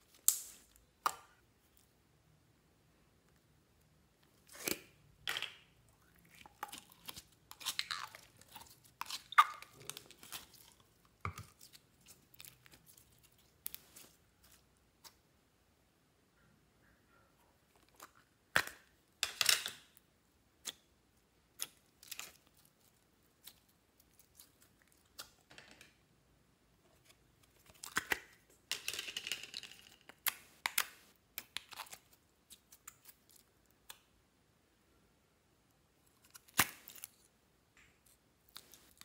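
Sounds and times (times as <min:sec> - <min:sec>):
slime squelching: 0:05.9 - 0:15.1.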